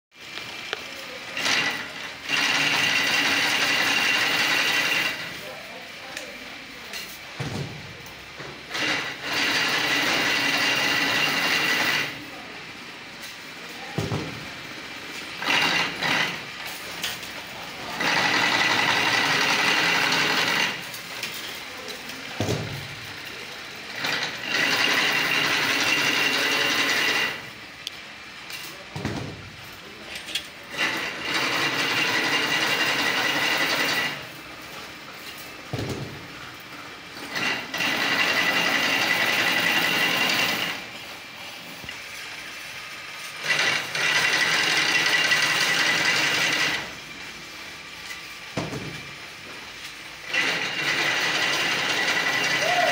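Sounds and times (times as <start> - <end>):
metallic whirring and rattling machine: 0.2 - 52.9
machine clanks: 13.2 - 27.5, 28.4 - 40.9, 48.0 - 52.9.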